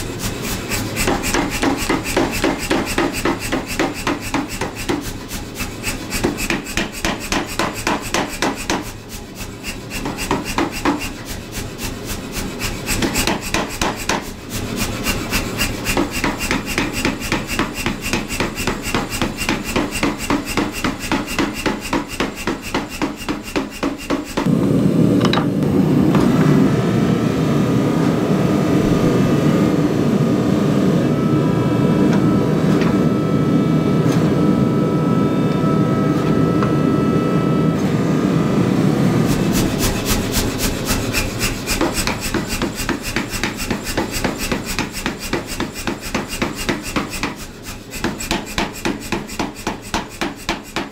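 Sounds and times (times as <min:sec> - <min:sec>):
power hammer striking steel: 0:00.0 - 0:14.4, 0:15.0 - 0:24.5, 0:39.3 - 0:50.9.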